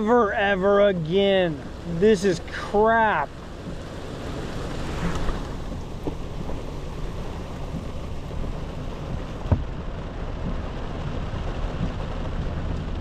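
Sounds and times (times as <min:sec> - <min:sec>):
falling rain: 0:00.0 - 0:13.0
wind rumbling on microphone: 0:03.3 - 0:13.0.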